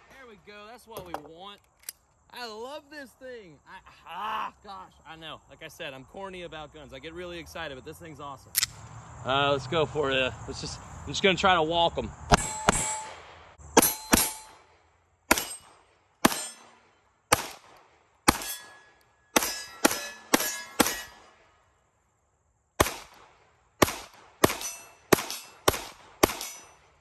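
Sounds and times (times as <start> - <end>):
pistol shots: 12.3 - 14.7, 15.3 - 18.8, 19.4 - 21.3, 22.8 - 26.8
steel target ringing ding: 12.4 - 13.2, 13.8 - 14.5, 18.4 - 21.2.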